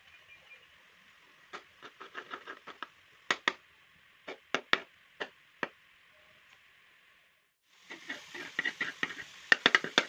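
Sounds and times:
faint steady hiss: 0.0s - 10.0s
metal spoon tapping a pan: 8.4s - 10.0s.

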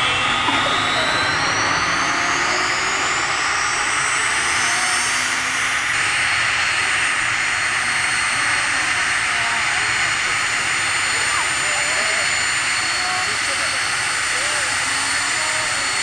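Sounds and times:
loud rushing noise: 0.0s - 16.0s
turbine engine whine: 0.0s - 16.0s.

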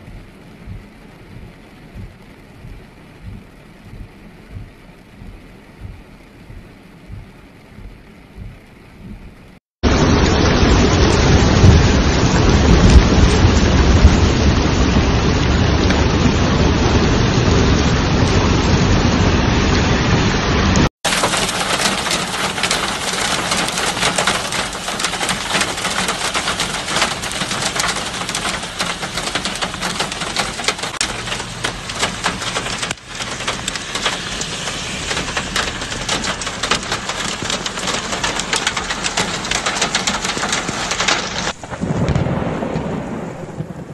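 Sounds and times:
low rumble: 0.0s - 20.9s, 31.0s - 38.5s
fine rain patter: 0.0s - 43.9s
heavy rain pouring: 0.0s - 43.9s.

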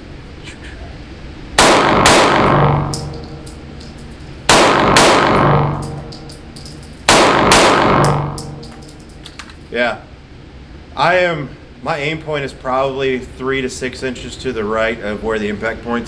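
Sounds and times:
pistol shots echoing indoors: 1.6s - 9.2s.

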